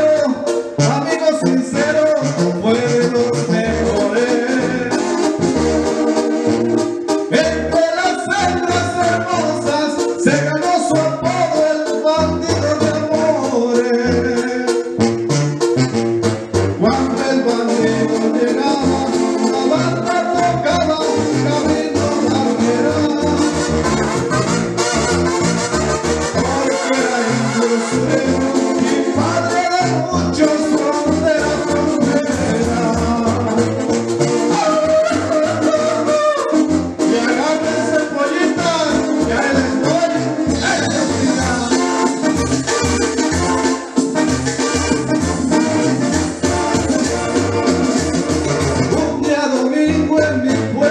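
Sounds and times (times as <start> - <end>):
man singing into a microphone: 0.0 - 5.5, 7.3 - 15.0, 16.8 - 24.0, 26.3 - 42.4, 48.8 - 50.9
backing track with brass and bass: 0.0 - 50.9.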